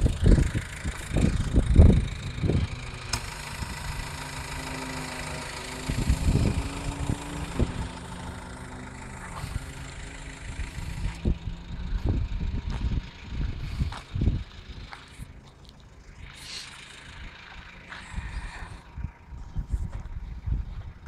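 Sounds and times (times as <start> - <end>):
low rumbles on microphone: 0.0 - 2.9, 10.5 - 15.4, 18.0 - 21.0
diesel engine idling: 0.0 - 21.0.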